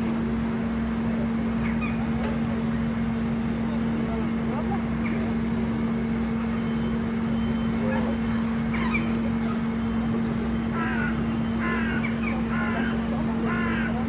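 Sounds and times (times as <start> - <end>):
steady low hum: 0.0 - 14.0
crow cawing: 10.7 - 14.0.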